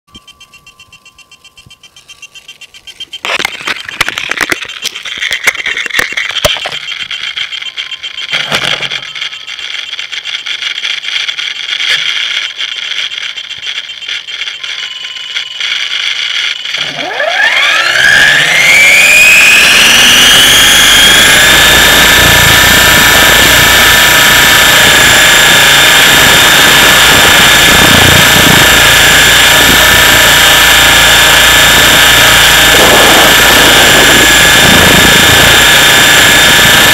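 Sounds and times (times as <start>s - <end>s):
model helicopter motor whine: 0.1s - 36.9s
rotor noise: 0.1s - 36.9s
clicks and rattles of handling: 3.2s - 14.6s.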